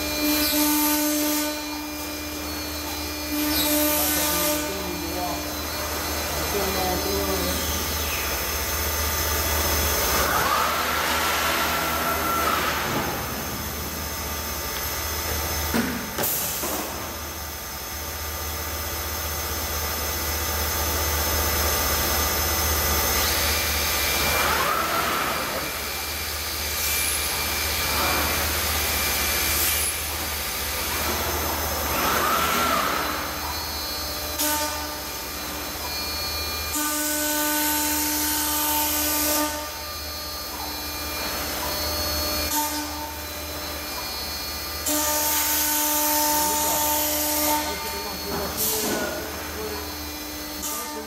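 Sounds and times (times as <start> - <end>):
machine low hum: 0.0 - 16.2
whine of axis drives: 0.0 - 50.8.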